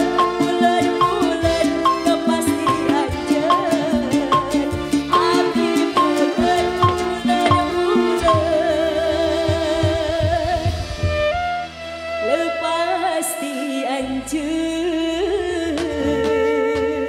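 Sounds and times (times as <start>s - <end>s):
woman singing through microphone: 0.0s - 10.9s, 12.2s - 17.0s
drum strokes: 0.0s - 12.5s
band with violin and guitar: 0.0s - 17.0s.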